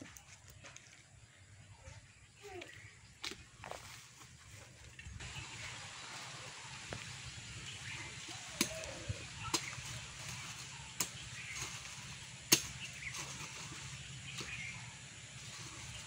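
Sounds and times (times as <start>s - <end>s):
knife chopping plants and soil: 6.9s - 16.0s.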